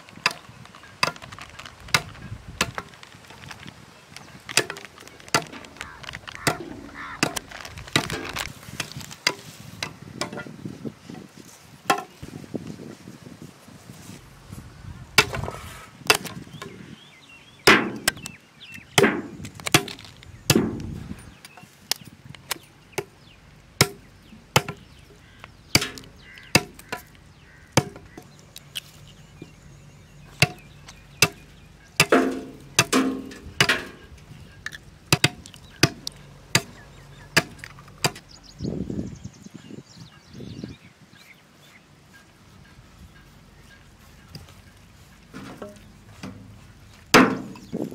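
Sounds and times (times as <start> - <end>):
blade chopping bamboo: 0.2 - 3.1, 4.4 - 10.6, 15.2 - 16.8, 17.7 - 18.3, 18.9 - 20.9, 21.8 - 25.0, 25.6 - 28.8, 30.3 - 38.3, 47.1 - 47.8.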